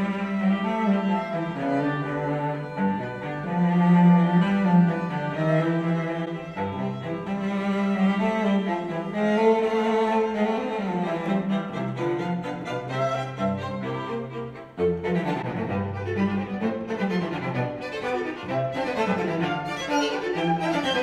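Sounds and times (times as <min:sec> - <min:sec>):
cello line: 0:00.0 - 0:21.0
classical string music on speakers: 0:00.0 - 0:21.0.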